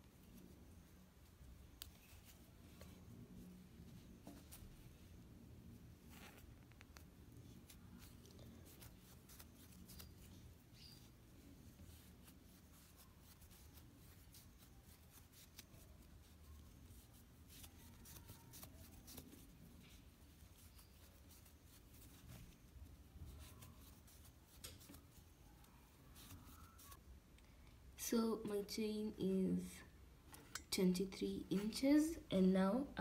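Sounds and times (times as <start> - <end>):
low room hum: 0.0 - 33.0
crochet hook pulling yarn: 1.5 - 3.0, 6.1 - 27.0.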